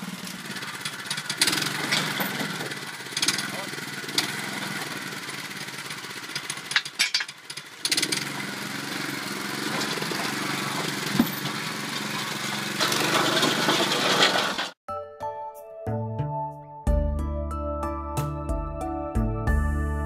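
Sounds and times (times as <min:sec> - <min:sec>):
small engine running: 0:00.0 - 0:14.8.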